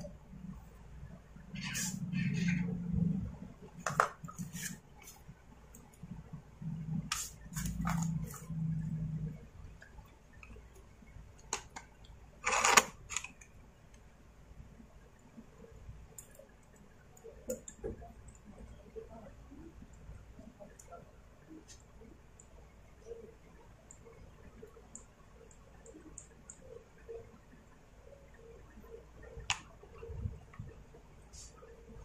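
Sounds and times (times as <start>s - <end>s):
low hum: 0.0s - 4.6s, 5.3s - 11.3s.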